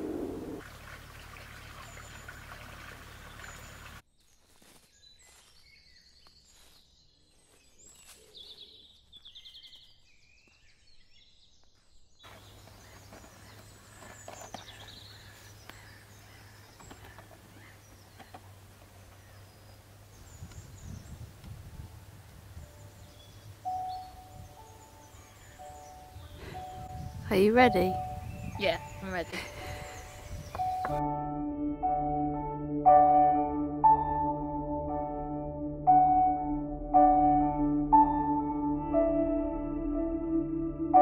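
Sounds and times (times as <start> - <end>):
small birds chirping: 1.7 - 21.6, 22.6 - 31.0
bird trill: 22.8 - 31.0.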